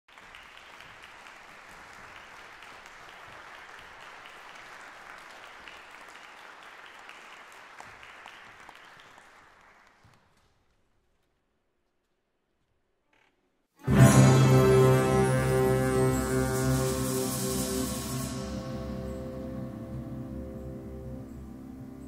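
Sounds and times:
audience applauding: 0.1 - 10.4.

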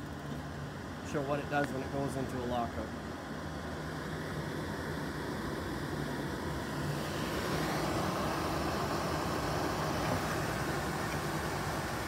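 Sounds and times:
furnace blower motor humming: 0.0 - 12.0.

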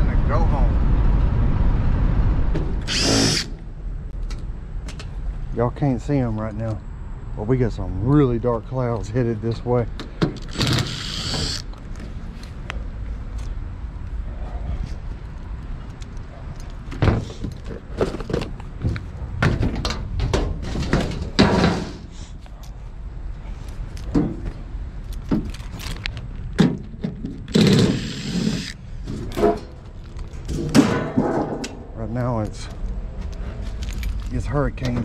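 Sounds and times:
sheet metal clanks and thunks: 19.4 - 22.1, 30.5 - 31.9
metal scraping rattle: 27.2 - 31.9.

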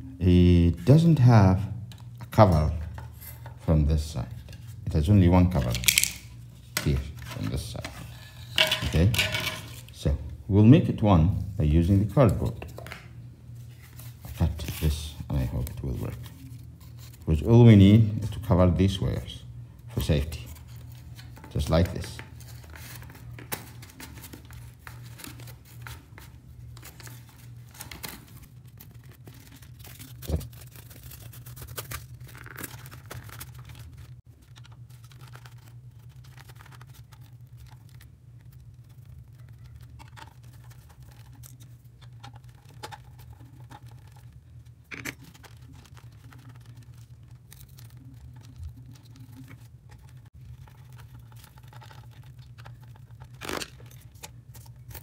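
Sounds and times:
steady low hum: 0.0 - 55.0
cardboard crinkling and scraping: 4.2 - 10.0, 20.0 - 55.0.

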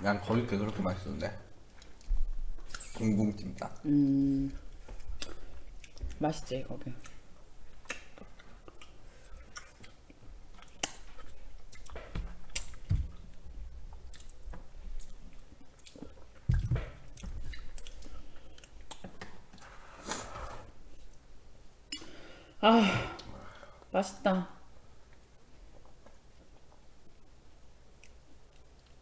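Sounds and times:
close-miked chewing: 1.6 - 19.7, 27.9 - 29.0.

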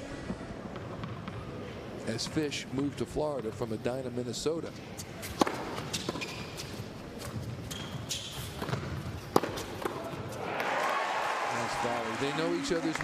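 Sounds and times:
tennis ball hit by racquets: 5.2 - 6.5, 8.4 - 10.7
crowd applause: 10.4 - 13.0.

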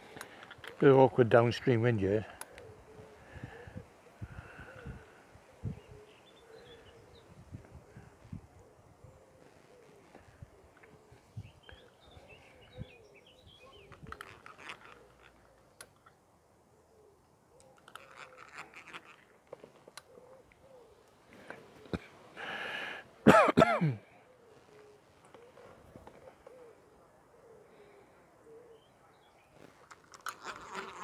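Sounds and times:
pigeon cooing: 2.4 - 15.8, 20.0 - 22.9, 24.0 - 29.8
man clearing his throat: 23.2 - 24.1
man coughing harshly: 23.2 - 24.1.

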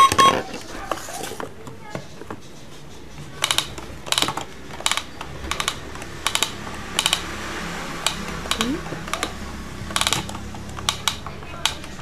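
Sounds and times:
toy cash register plastic clicks: 3.4 - 7.2, 9.9 - 12.0.

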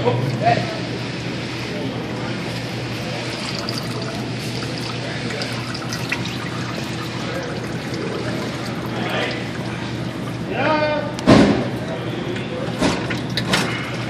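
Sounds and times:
oil pouring into pan: 2.7 - 10.5.

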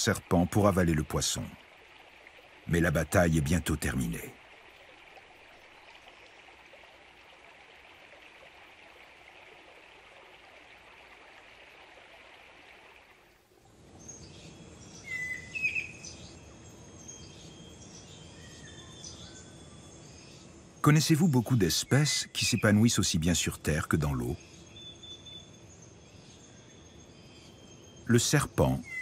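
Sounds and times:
birds chirping: 0.0 - 1.6, 2.4 - 6.1, 14.0 - 29.0
faint steady hiss: 0.0 - 29.0.

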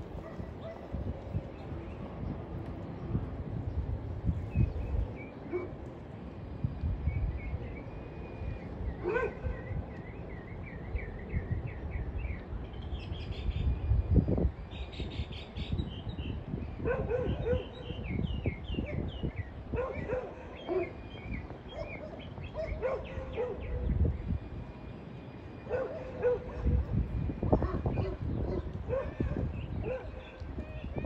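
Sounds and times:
constant low rumbling: 0.0 - 31.0
small birds chirping: 14.7 - 26.7.

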